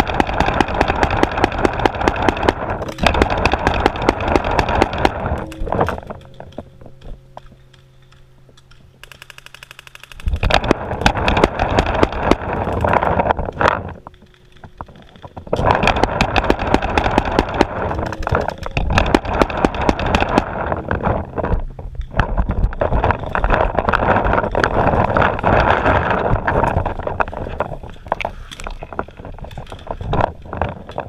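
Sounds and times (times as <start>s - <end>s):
paintball markers firing: 0.0s - 6.0s, 9.0s - 13.0s, 15.9s - 20.6s.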